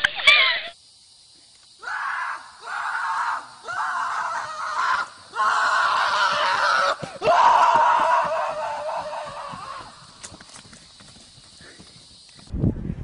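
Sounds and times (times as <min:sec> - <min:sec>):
scream-like cries: 0:01.8 - 0:10.2.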